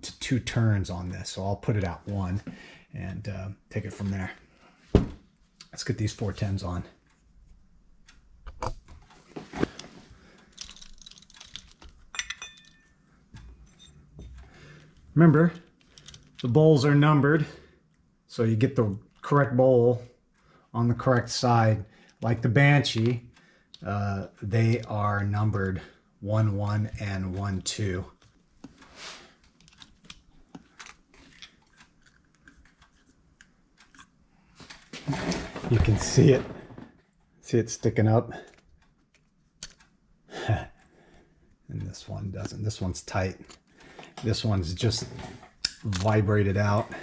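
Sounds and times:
metal parts clicking and tapping: 10.4 - 14.5, 15.6 - 16.6
metallic clink ringing: 12.1 - 13.0.

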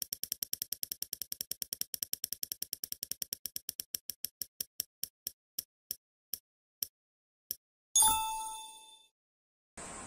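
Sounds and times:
spinner wheel ticking: 0.0 - 5.4.

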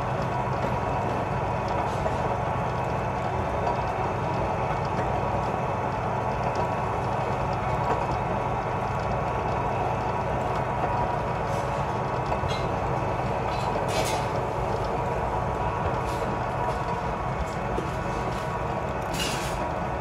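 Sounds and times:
rebar cutter mechanical hum: 0.0 - 20.0.

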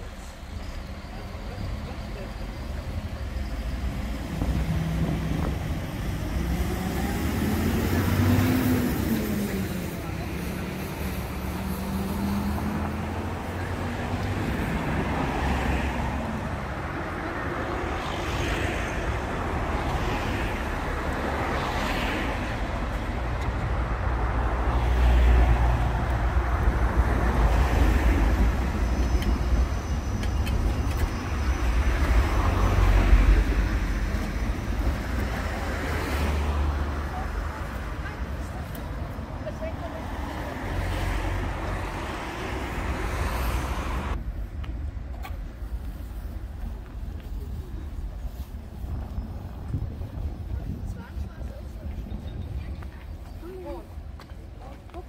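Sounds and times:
street traffic hum: 0.0 - 55.0
tram rolling on rails: 0.0 - 55.0.

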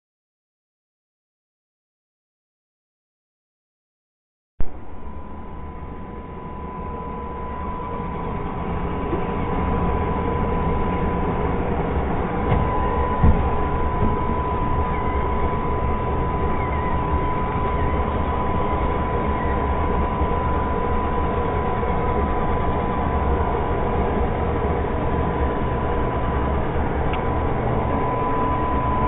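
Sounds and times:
high whine: 4.6 - 29.0
robot vacuum motor and brush drone: 6.5 - 23.6.

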